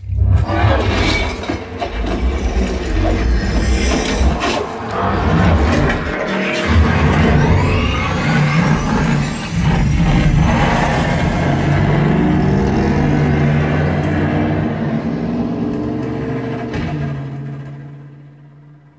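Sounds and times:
car engine running hard: 0:08.6 - 0:18.9.

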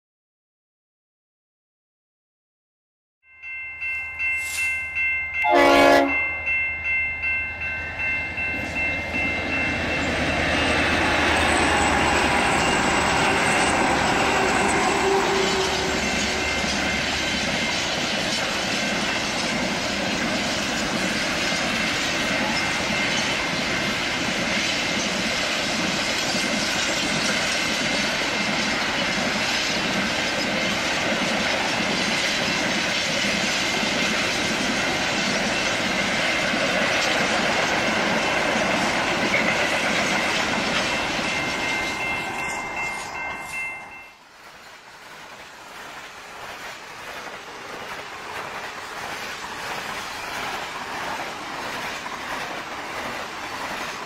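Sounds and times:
locomotive engines droning: 0:04.2 - 0:29.3, 0:33.9 - 0:44.2
high wheel squeal: 0:10.0 - 0:17.9.

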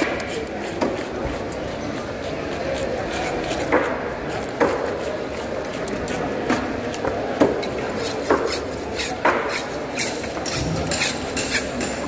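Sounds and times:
steady background noise: 0:00.0 - 0:12.0
knife chopping on wooden block: 0:03.5 - 0:05.0, 0:07.4 - 0:12.0.

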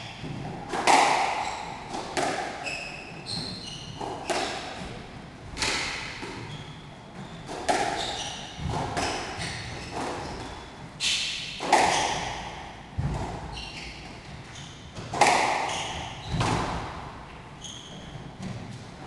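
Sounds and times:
squash ball hitting racket and walls: 0:00.0 - 0:19.0
shoe squeaks on wooden floor: 0:02.6 - 0:04.5, 0:06.4 - 0:11.2, 0:13.4 - 0:14.9, 0:15.6 - 0:16.4, 0:17.6 - 0:18.2.

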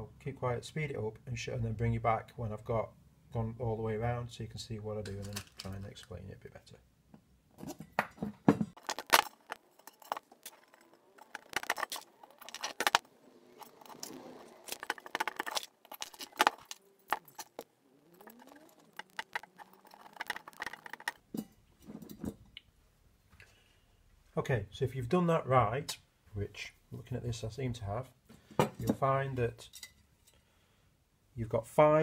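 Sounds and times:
bicycle spokes clinking: 0:08.8 - 0:22.3.

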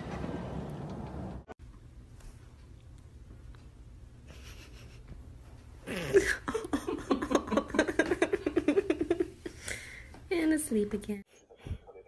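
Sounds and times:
person giggling: 0:04.3 - 0:05.2, 0:05.8 - 0:09.4.

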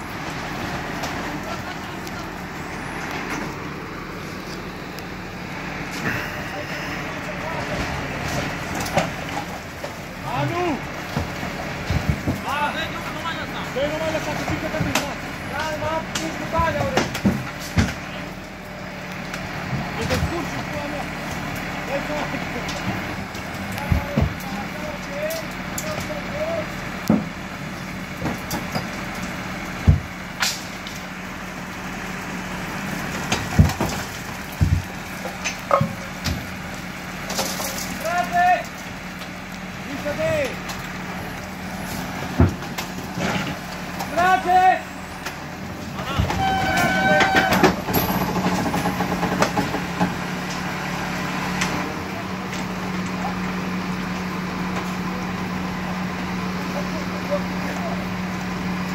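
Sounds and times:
crane truck engine running: 0:00.0 - 0:58.9
sharp clicks and knocks: 0:47.2 - 0:50.6.

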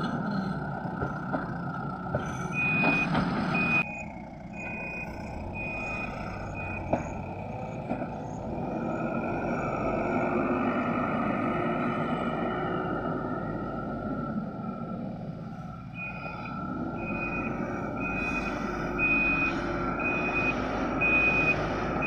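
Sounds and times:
diesel engines running: 0:00.0 - 0:22.0
reversing alarm beeping: 0:02.2 - 0:11.0, 0:15.8 - 0:22.0.

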